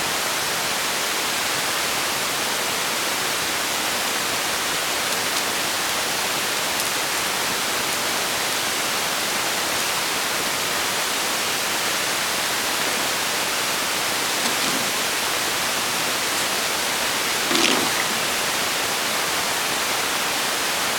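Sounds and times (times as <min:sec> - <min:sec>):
static hiss: 0:11.2 - 0:20.1.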